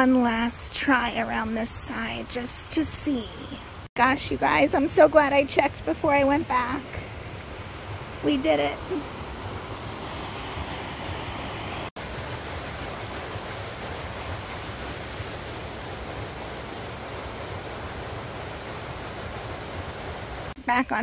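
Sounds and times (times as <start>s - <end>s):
water rushing past water wheel: 0.0s - 20.6s.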